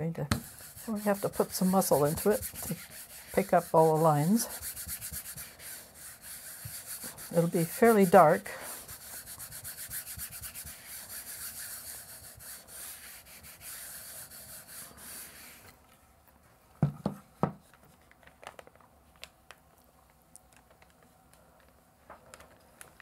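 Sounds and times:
baren rubbing on paper: 0:00.3 - 0:15.7
faint paper clicks: 0:17.7 - 0:23.0.

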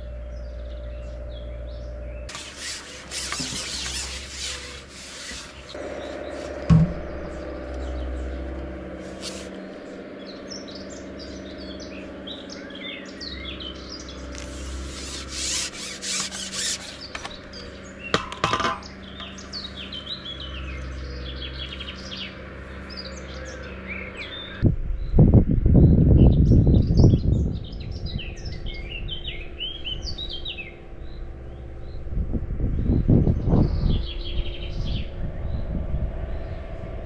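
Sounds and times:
birds chirping and singing: 0:00.0 - 0:36.9
rustles and knocks: 0:06.4 - 0:07.3.

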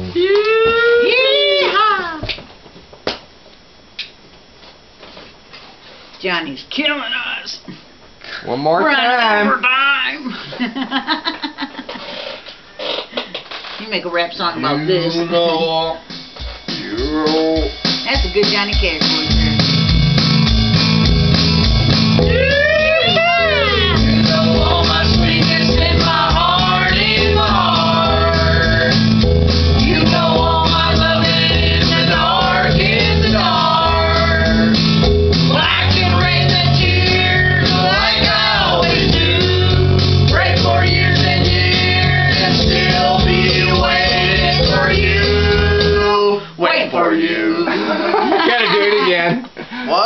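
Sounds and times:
rock blues music: 0:16.0 - 0:46.2
voices singing together: 0:22.2 - 0:48.5.

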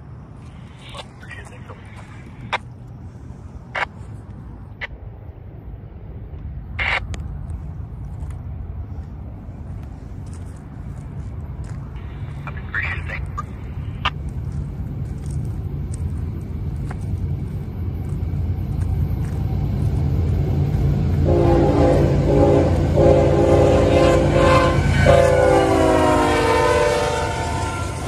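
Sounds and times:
diesel locomotives rumbling: 0:00.0 - 0:28.0
locomotive air horn chord: 0:21.2 - 0:28.0.

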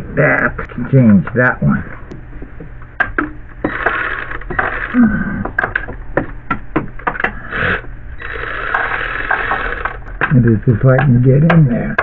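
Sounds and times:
power ratchet whirring: 0:03.6 - 0:05.0, 0:07.3 - 0:10.4.

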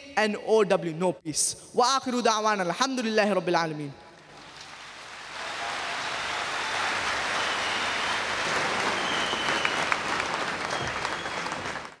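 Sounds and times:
audience applauding: 0:04.3 - 0:12.0
sharp individual claps: 0:04.4 - 0:12.0.

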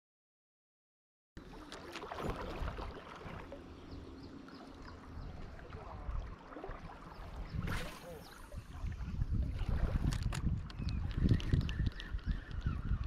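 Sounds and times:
flowing water: 0:01.4 - 0:13.0
wind on microphone: 0:05.1 - 0:13.0.

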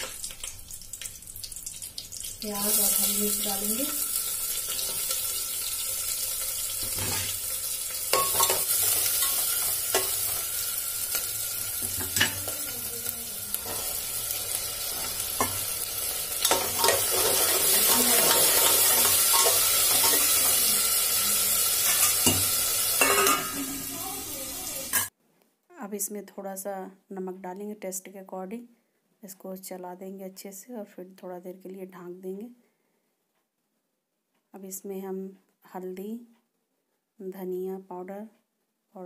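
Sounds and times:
onions sizzling in hot oil: 0:00.0 - 0:25.1.

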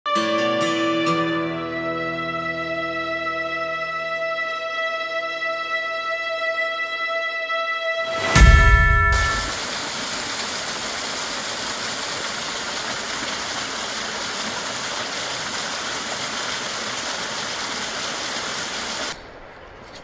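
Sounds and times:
waterfall pouring over rocks: 0:08.1 - 0:19.2.

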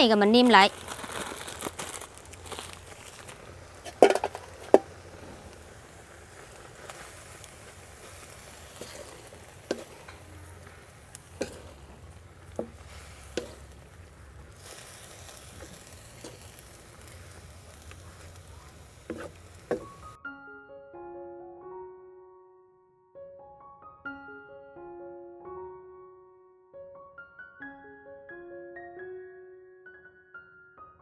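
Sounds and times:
meat sizzling in a wok: 0:00.8 - 0:20.2
wooden spatula scraping meat: 0:06.4 - 0:20.2
spatula knocking against pan: 0:19.1 - 0:20.0.

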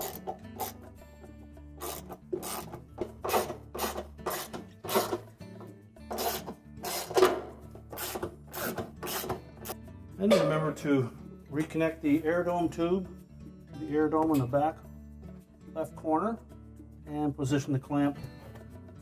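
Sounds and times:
socket ratchet clicking: 0:00.0 - 0:00.9, 0:01.8 - 0:05.3, 0:06.1 - 0:07.3, 0:07.9 - 0:09.8
soft background music: 0:00.0 - 0:19.0.

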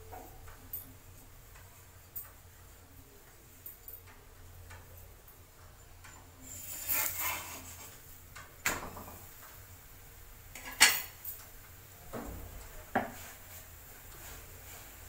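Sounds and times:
spatula scraping iron griddle: 0:06.4 - 0:08.1.

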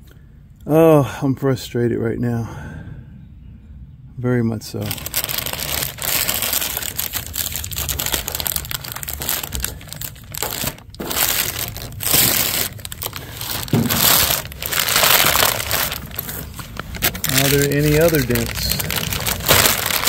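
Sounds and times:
packaging crumpling and crinkling: 0:04.8 - 0:20.0.

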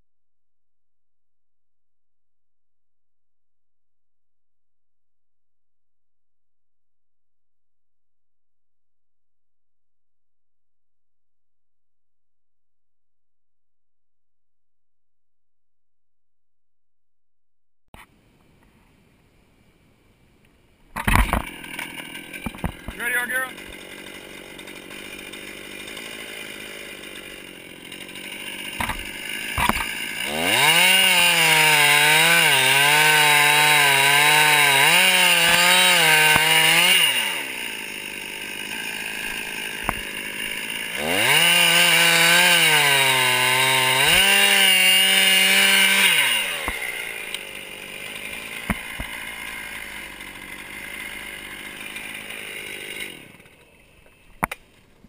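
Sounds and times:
chainsaw cutting wood: 0:20.9 - 0:55.0.

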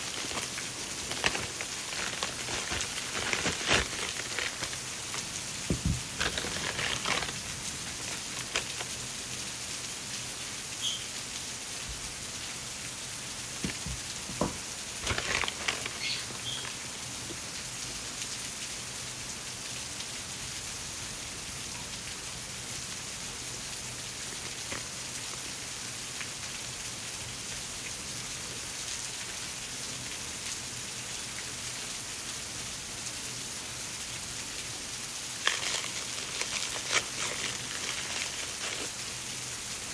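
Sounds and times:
packaging crinkling: 0:00.0 - 0:09.2, 0:13.6 - 0:16.9, 0:24.2 - 0:25.5, 0:35.3 - 0:39.9
steady hiss: 0:00.0 - 0:39.9.

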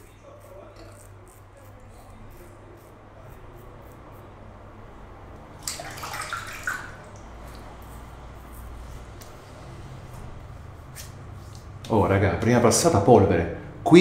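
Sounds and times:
razor scraping stubble: 0:00.0 - 0:04.4, 0:07.4 - 0:11.3.

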